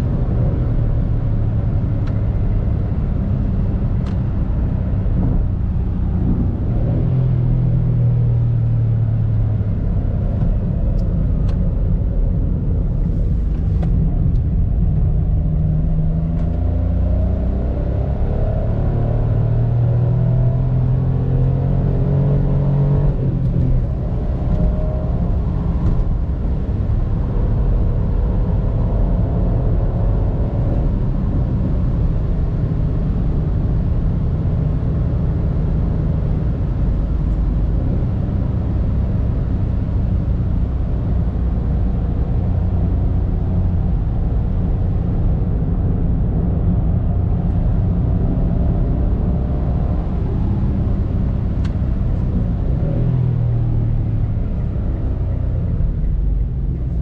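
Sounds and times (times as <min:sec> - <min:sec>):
car engine from inside cabin: 0:00.0 - 0:57.0
road and wind noise: 0:00.0 - 0:57.0.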